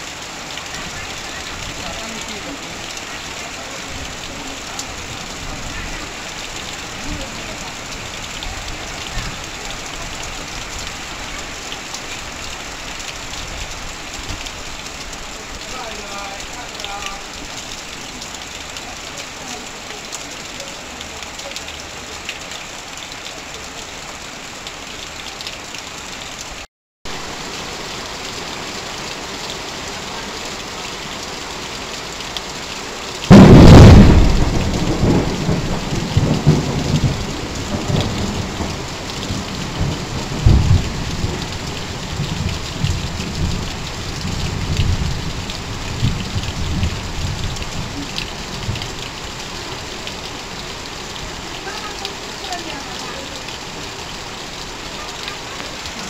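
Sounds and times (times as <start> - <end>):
heavy rain on tin roof: 0.0 - 56.0
thunderclap: 33.3 - 41.4
rumbling thunder: 33.3 - 48.0.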